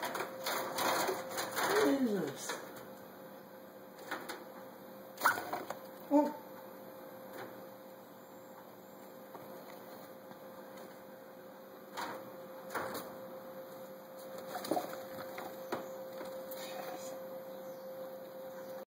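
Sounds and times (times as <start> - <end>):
steady hum: 0.0 - 18.9.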